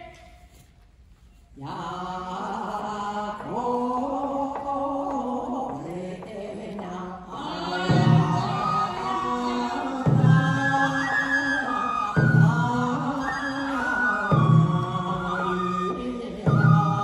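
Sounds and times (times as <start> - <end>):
person chanting a song: 1.6 - 17.0
deep drum beat: 7.6 - 11.0, 12.1 - 13.2, 14.3 - 17.0.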